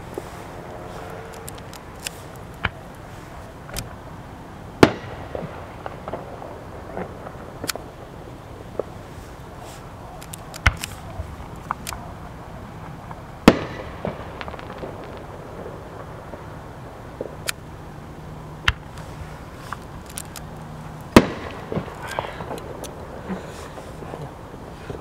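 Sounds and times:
firework shells banging: 0.0 - 4.0, 4.8 - 12.1, 12.8 - 16.5, 18.6 - 25.0
small firework pops: 4.8 - 8.0, 12.8 - 16.5, 18.6 - 23.4.

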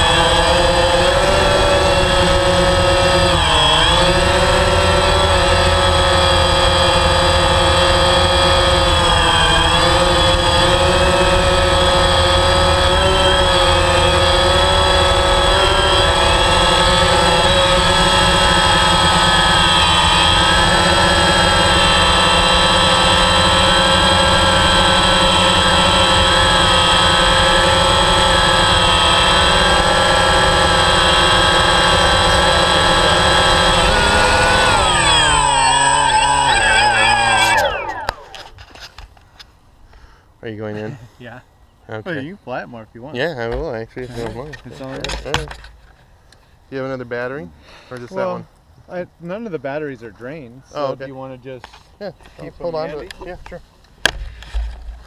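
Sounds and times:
drone motors and propellers whirring: 0.0 - 39.2.

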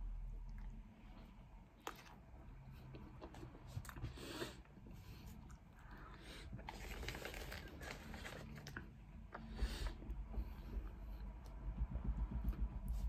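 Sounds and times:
chewing bread: 0.4 - 11.2
paper wrapping rustling: 6.6 - 8.9.

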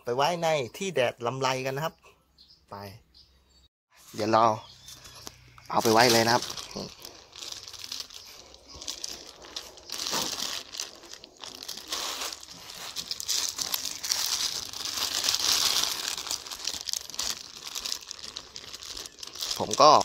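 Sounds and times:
plastic bag crinkling: 5.1 - 20.0.

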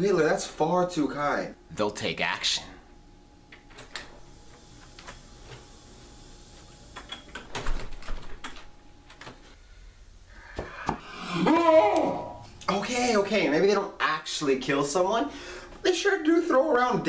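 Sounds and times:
door opening and shutting: 6.9 - 9.3.

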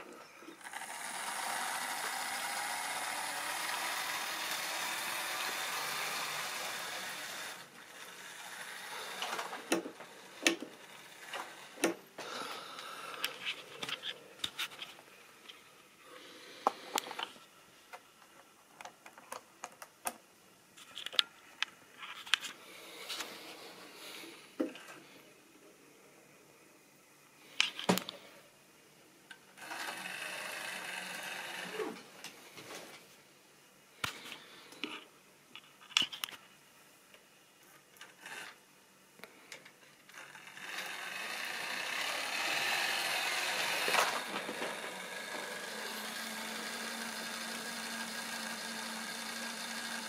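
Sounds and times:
model train motor whirring: 0.5 - 12.0, 29.6 - 32.1, 38.0 - 38.6, 40.0 - 50.0.

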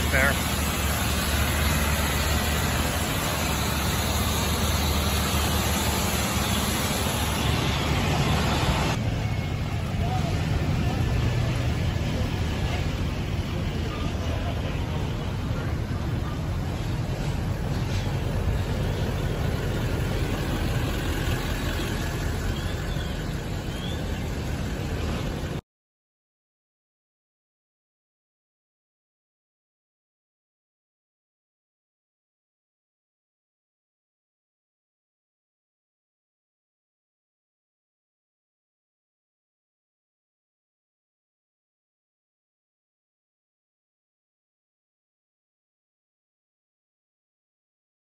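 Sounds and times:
diesel engine running: 0.0 - 25.6.

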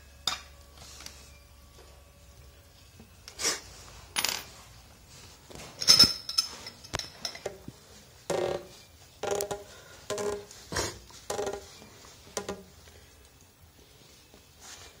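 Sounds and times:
metal fittings and tools clinking: 5.5 - 7.7.

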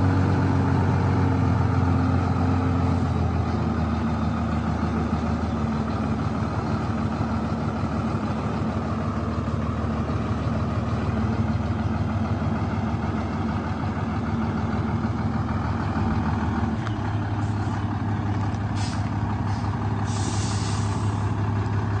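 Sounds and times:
diesel truck engine idling: 0.0 - 22.0
air brake hisses: 18.8 - 21.4.

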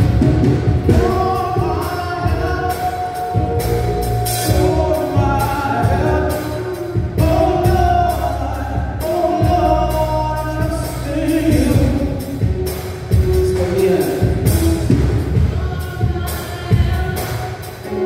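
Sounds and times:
vocal group singing gospel: 0.9 - 12.6.

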